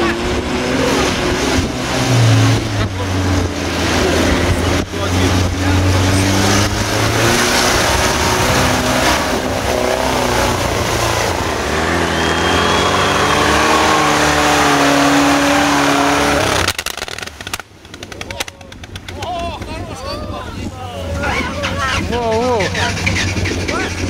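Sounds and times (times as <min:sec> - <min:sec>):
off-road engine revving hard: 0:00.0 - 0:17.6.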